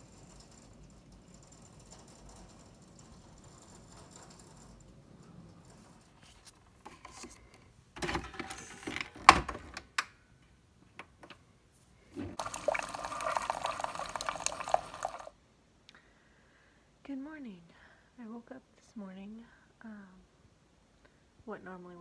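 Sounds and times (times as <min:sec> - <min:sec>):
coffee streaming into mug: 0:12.3 - 0:15.3.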